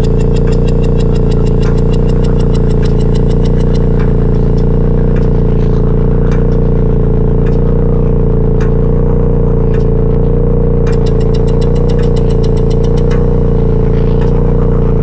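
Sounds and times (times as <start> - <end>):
fast clicking pulse: 0.0 - 5.6, 10.8 - 15.0
low electronic drone: 0.0 - 15.0
single sharp ticks: 10.9 - 13.5.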